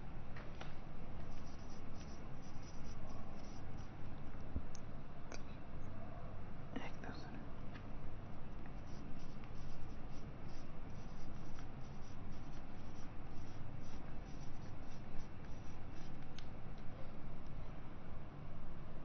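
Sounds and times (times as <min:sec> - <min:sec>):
low background hum: 0:00.0 - 0:19.0
marker squeaking on whiteboard: 0:01.3 - 0:03.9, 0:08.6 - 0:16.3.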